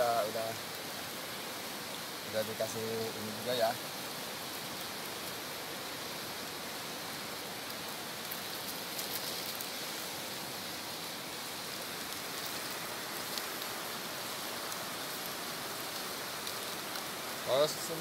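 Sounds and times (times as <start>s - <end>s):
chicken sizzling in a wok: 0.0s - 18.0s
faint crinkles and clicks: 7.6s - 10.2s, 10.9s - 17.2s.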